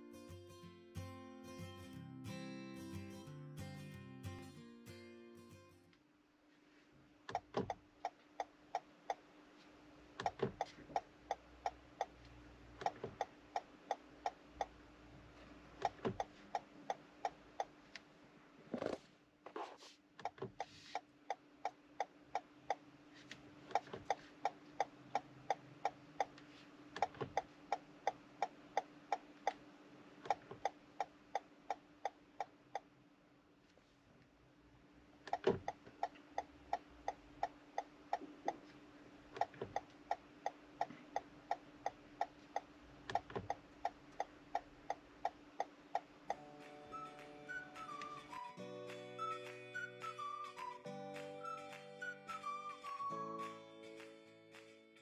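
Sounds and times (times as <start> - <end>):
turn signal ticking: 10.2 - 14.8, 15.8 - 17.7, 27.0 - 29.6, 35.3 - 38.7, 39.4 - 46.4.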